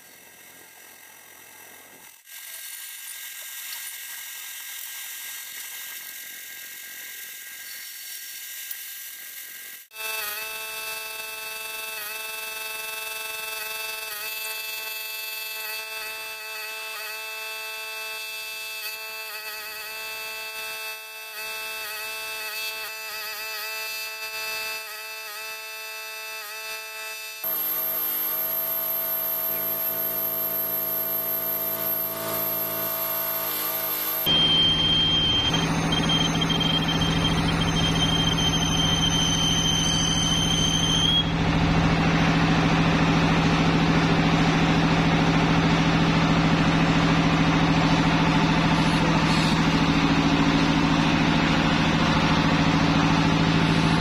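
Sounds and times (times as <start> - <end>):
lathe tool cutting steel hiss: 27.4 - 41.3
steady whine of held tones: 27.4 - 54.0.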